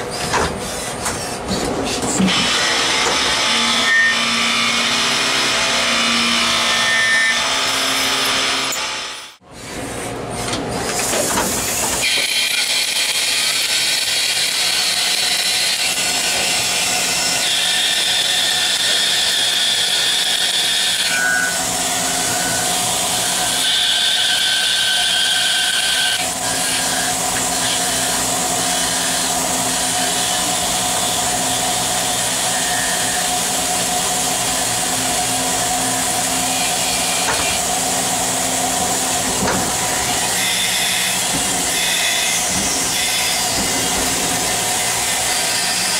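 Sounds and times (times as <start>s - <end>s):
lathe machining noise: 2.3s - 9.4s, 11.8s - 45.9s.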